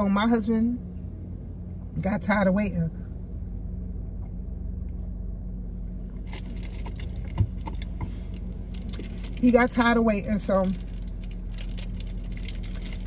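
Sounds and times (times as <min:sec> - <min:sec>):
car engine hum: 0:00.0 - 0:13.0
light clicks and rattles: 0:06.2 - 0:13.0.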